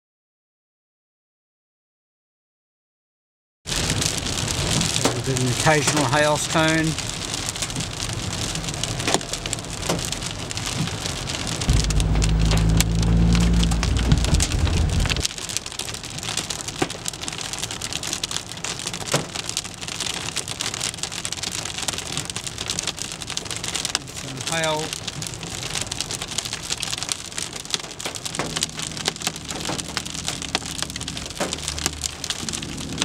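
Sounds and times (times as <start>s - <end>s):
hailstones tapping: 3.7s - 33.0s
heavy rain drumming on car: 3.7s - 33.0s
loud low rumble: 11.0s - 15.3s, 25.8s - 33.0s.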